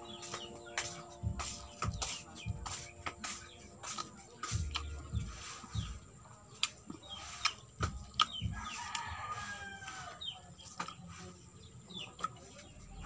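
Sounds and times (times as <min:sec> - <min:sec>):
sharp eating clicks: 0:03.0 - 0:05.3, 0:06.5 - 0:10.0, 0:12.0 - 0:12.7
rooster crowing: 0:08.5 - 0:10.2.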